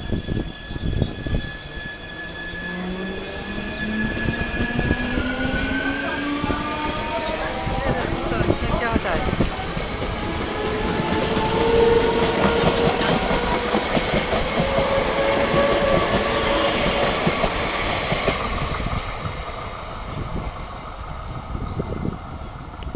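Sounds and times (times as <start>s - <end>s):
train whine: 0.0s - 22.9s
train wheels clattering: 8.2s - 19.9s.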